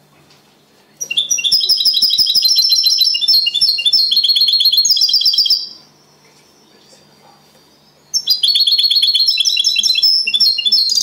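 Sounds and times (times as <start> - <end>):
goldfinch chirping song: 1.0 - 5.9, 7.7 - 11.0.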